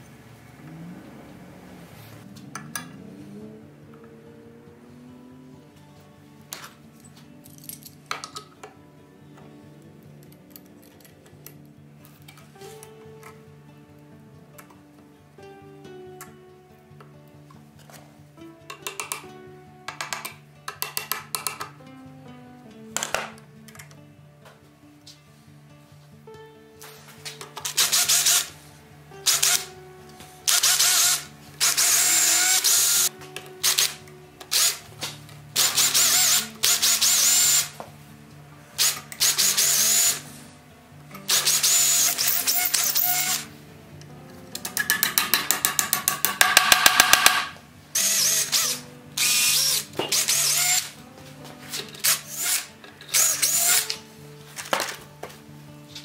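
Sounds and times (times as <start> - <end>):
cordless drill whining: 27.6 - 28.6, 29.2 - 29.7, 30.5 - 37.8, 38.8 - 40.3, 41.2 - 43.5, 48.0 - 50.9, 52.0 - 54.0.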